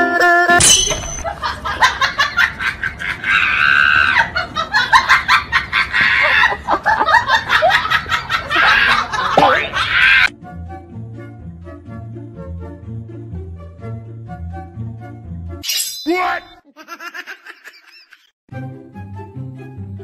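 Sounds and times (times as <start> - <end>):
people laughing hard: 1.2 - 10.3, 16.7 - 18.3.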